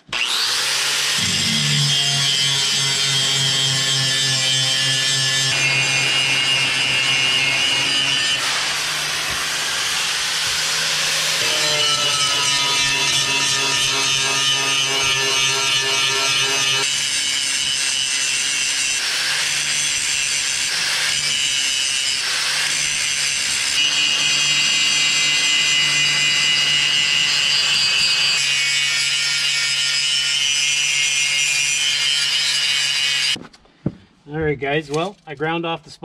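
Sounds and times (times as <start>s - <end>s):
angle grinder motor whine: 0.0s - 17.2s, 22.1s - 28.9s.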